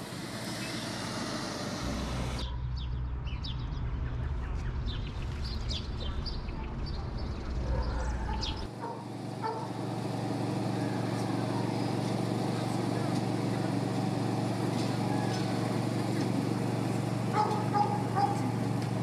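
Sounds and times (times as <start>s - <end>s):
outdoor background hum: 0.0s - 19.0s
steady low rumble: 2.4s - 8.8s
small birds chirping: 2.4s - 9.8s, 10.4s - 19.0s.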